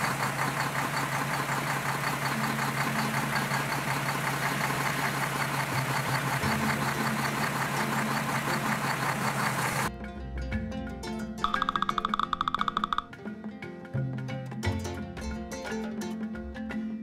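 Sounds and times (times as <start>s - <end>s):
truck engine running: 0.0s - 9.9s, 11.5s - 13.1s.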